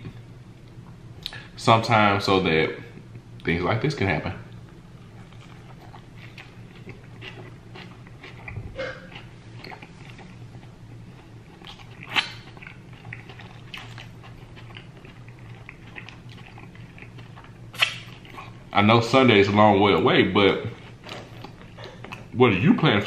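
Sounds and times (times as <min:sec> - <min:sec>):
man chewing food: 0:04.5 - 0:18.8, 0:20.5 - 0:22.4.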